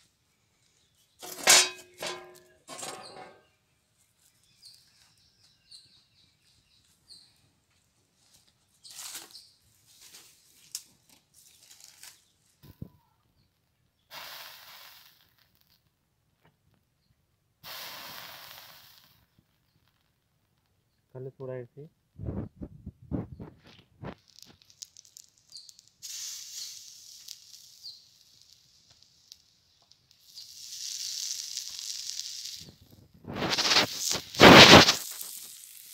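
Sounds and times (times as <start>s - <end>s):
liquid hissing on hot griddle: 14.1s - 15.5s, 17.6s - 19.3s, 24.2s - 35.9s
faint crackles and knocks: 22.3s - 26.0s.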